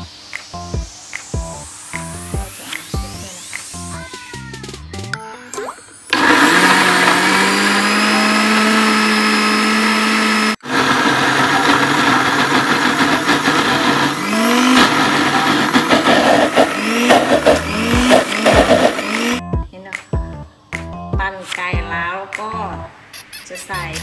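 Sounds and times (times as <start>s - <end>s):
blender motor running: 6.0s - 19.4s.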